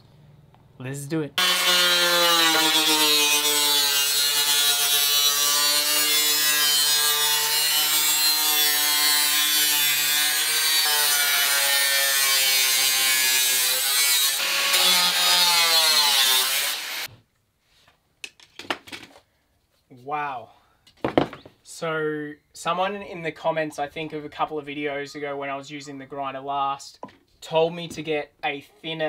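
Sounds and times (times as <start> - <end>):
angle grinder cutting steel: 1.4 - 17.1.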